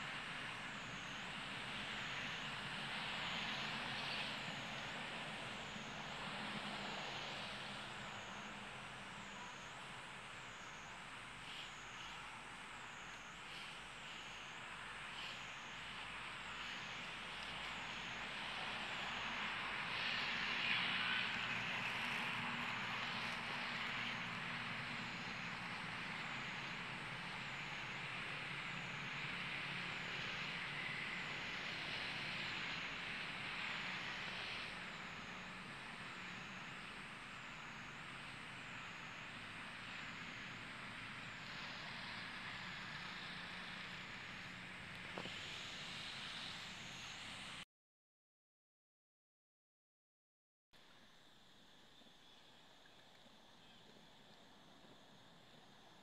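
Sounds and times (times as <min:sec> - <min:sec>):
insect chorus hiss: 0:00.0 - 0:47.6, 0:50.8 - 0:56.0
thin insect whine: 0:09.2 - 0:29.3, 0:51.0 - 0:56.0
faint low hum: 0:50.8 - 0:56.0.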